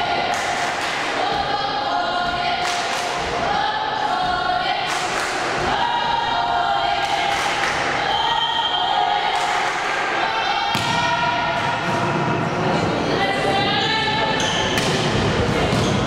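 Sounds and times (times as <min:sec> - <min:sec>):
girls chanting in unison: 0:00.0 - 0:12.2.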